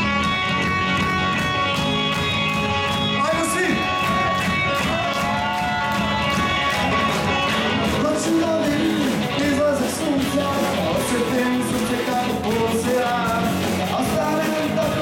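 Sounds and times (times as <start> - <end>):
live rock band: 0.0 - 15.0
person singing: 7.8 - 15.0.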